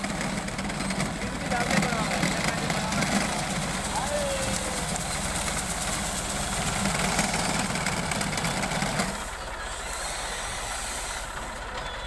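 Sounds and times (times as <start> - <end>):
tractor diesel engine running: 0.0 - 12.0.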